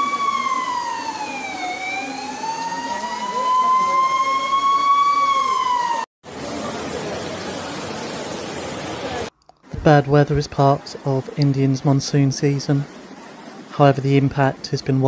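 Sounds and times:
siren wailing: 0.0s - 6.1s.

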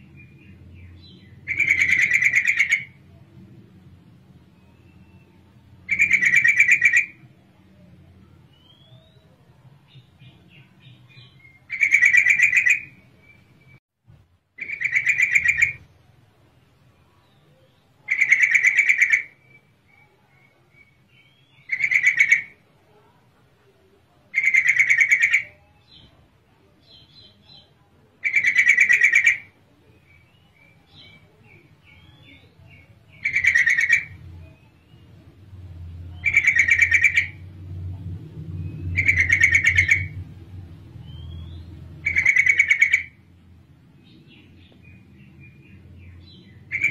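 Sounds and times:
bird chattering call: 1.0s - 3.0s, 5.9s - 7.2s, 11.1s - 13.0s, 14.6s - 15.8s, 18.0s - 19.6s, 21.5s - 22.6s, 24.3s - 25.6s, 28.2s - 29.6s, 31.9s - 34.6s, 36.2s - 37.5s, 38.8s - 40.2s, 41.2s - 43.2s, 46.0s - 46.9s
low rumble: 34.2s - 42.1s.

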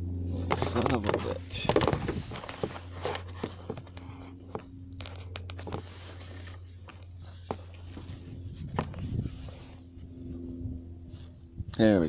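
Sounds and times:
steady low hum: 0.0s - 12.0s
camera being handled: 0.4s - 9.6s.

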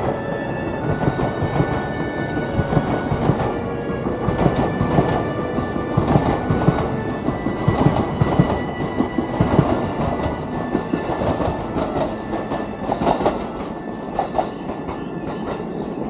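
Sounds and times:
electric train running past: 0.0s - 16.0s.

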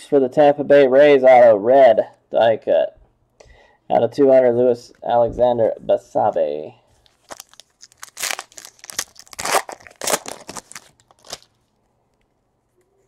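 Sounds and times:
foil wrapper crinkling and tearing: 7.0s - 11.7s.

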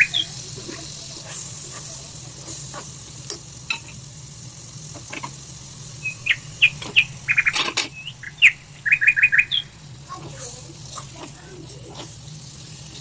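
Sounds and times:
small bird chirping: 0.0s - 0.4s, 5.8s - 9.8s.

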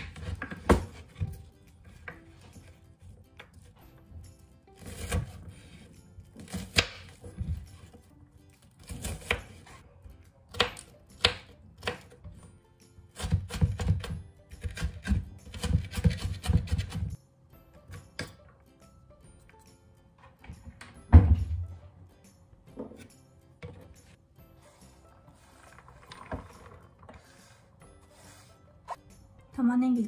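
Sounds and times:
soft background music: 0.0s - 30.0s
knife chopping on wooden board: 13.2s - 17.1s.

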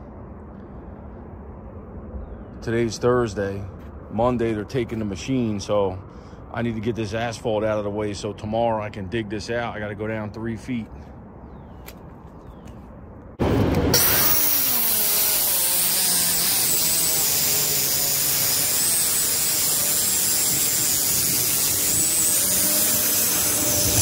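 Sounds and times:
circular saw cutting asphalt: 13.4s - 24.0s.

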